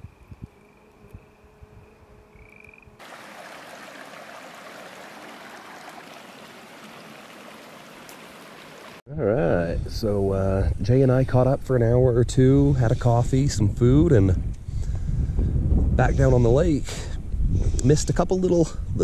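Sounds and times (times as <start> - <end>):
creek running over rocks: 3.0 - 9.0.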